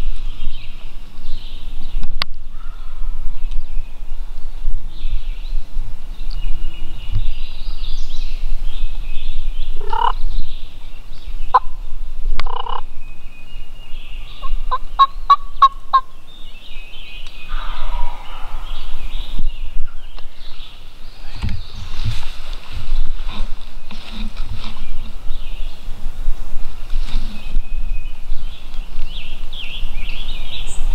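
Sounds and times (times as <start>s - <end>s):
songbirds chirping: 0.0s - 30.9s
turkey gobbling: 9.8s - 10.2s, 12.4s - 12.9s, 14.4s - 16.1s.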